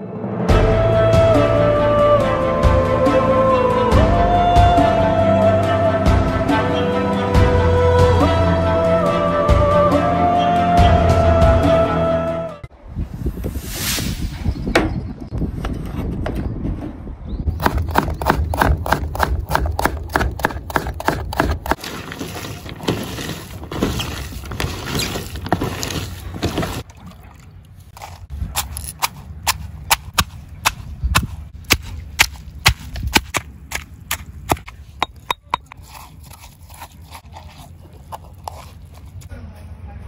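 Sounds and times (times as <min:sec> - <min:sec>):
knife chopping vegetables: 0:17.6 - 0:21.8.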